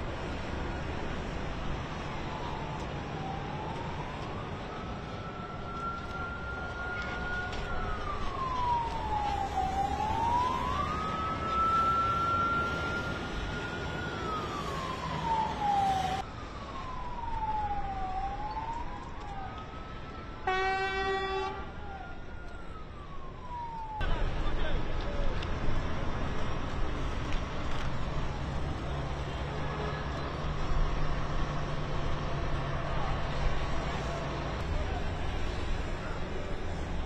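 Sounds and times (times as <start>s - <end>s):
vehicle siren wailing: 0.1s - 25.5s, 27.3s - 37.0s
vehicle horn: 20.4s - 21.6s.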